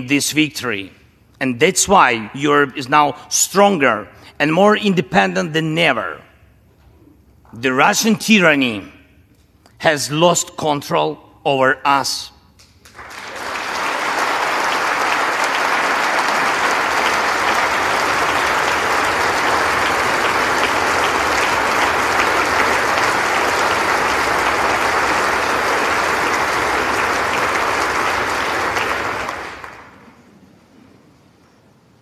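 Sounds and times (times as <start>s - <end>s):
large audience applauding: 12.8s - 30.2s.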